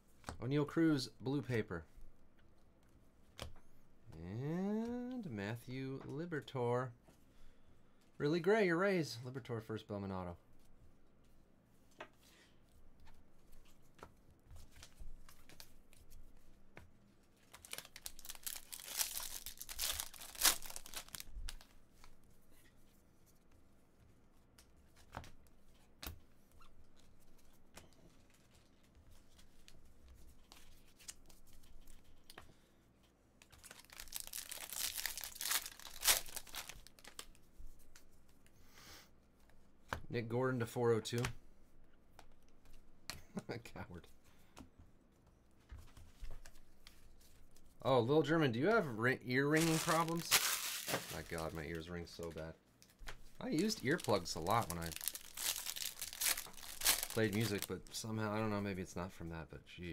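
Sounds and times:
foil wrappers tearing and crinkling: 17.6 - 21.7, 33.6 - 37.3, 49.5 - 51.6, 53.4 - 57.8.

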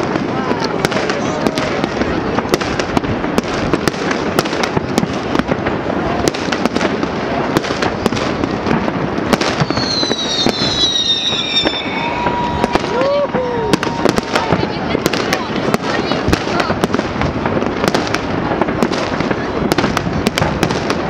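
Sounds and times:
distant fireworks bangs: 0.0 - 21.0
firework whistle sliding down: 9.6 - 14.5.

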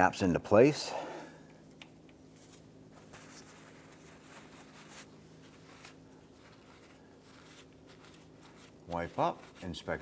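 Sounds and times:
faint steady hum: 0.0 - 10.0
soft handling rustles: 2.2 - 10.0.

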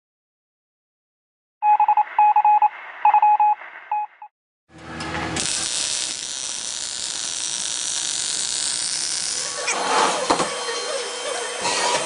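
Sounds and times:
two-tone electronic beeps: 1.6 - 4.3
welding arc hissing: 5.4 - 10.0.

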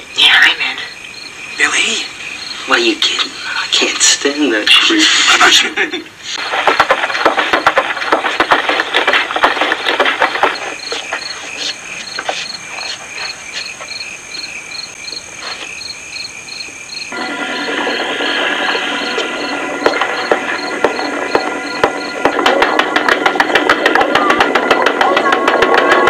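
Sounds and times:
crickets chirping: 0.0 - 24.8
dense crackling noise: 6.3 - 12.3
sustained music tones: 17.1 - 26.0.

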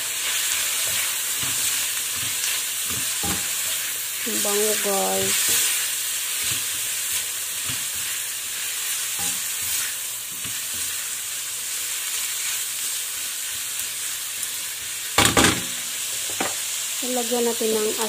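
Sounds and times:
food sizzling in a frying pan: 0.0 - 18.0
spatula scraping pan: 0.2 - 11.1.

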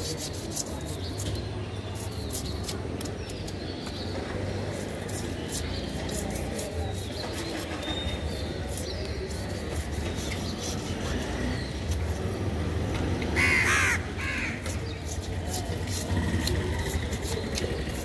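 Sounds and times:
knife scraping fish scales: 0.0 - 3.6, 4.6 - 12.3, 14.4 - 18.0
crow cawing: 13.4 - 14.6.

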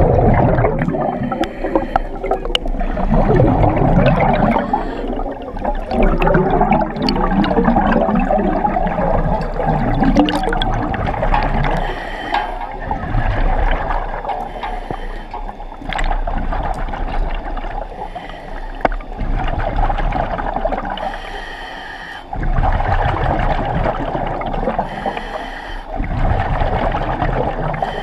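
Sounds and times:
bubbling exhaled air: 0.0 - 21.4, 22.3 - 28.0
regulator hissing inhalation: 1.2 - 2.7, 4.3 - 5.9, 11.7 - 12.8, 14.4 - 15.8, 21.0 - 22.3, 24.8 - 26.0.

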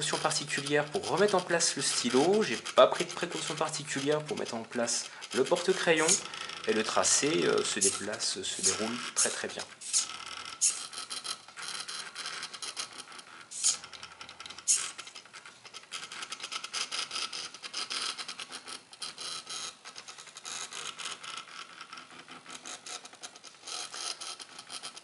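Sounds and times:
stepper motors ticking and whining: 0.0 - 11.2.

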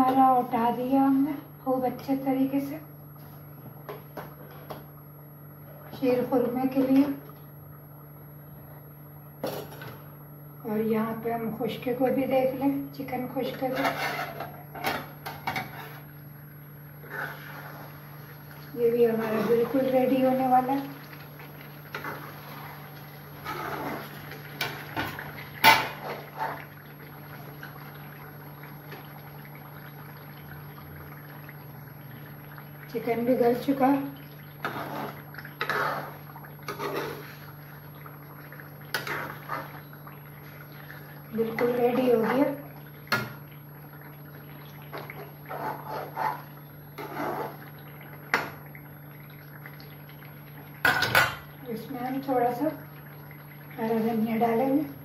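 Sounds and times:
metal spoon scraping pan: 13.6 - 14.5
spoon stirring bubbling gravy: 34.2 - 43.2.

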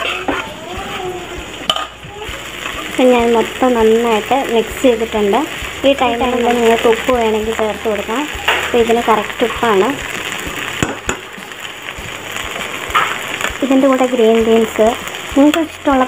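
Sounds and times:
spatula scraping a pot: 0.0 - 1.0.

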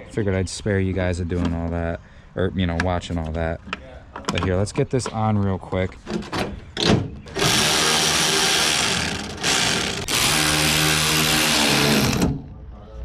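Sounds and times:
cordless drill running: 7.3 - 12.3.

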